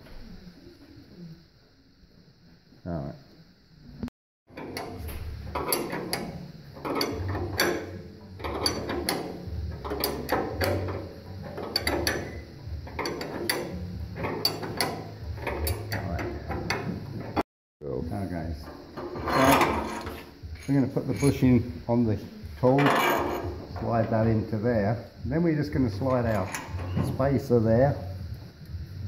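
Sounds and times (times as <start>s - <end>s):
ratchet wrench clicking: 4.6s - 17.0s
metal parts clinking: 4.6s - 17.4s, 19.0s - 21.4s, 22.7s - 24.0s, 25.9s - 27.2s.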